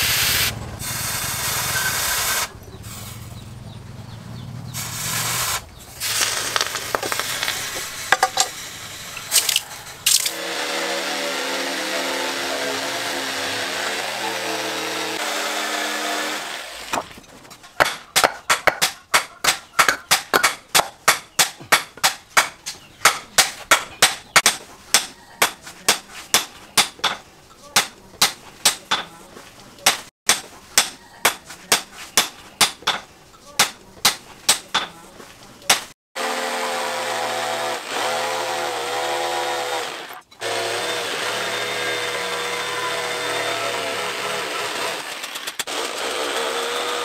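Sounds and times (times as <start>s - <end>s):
electric jigsaw cutting wood: 10.1s - 17.0s, 36.2s - 47.0s.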